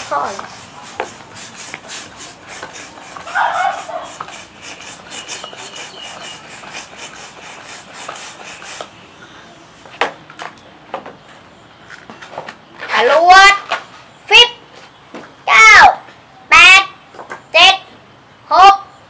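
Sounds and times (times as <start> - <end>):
balloon rubber squeaking: 0.0 - 9.0
balloon pump air hissing: 0.0 - 9.2.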